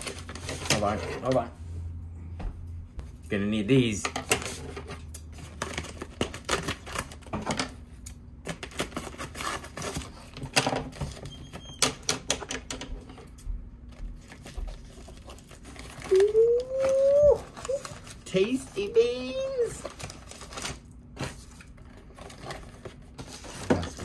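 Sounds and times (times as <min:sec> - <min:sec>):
plastic bag crinkling: 0:14.2 - 0:24.0.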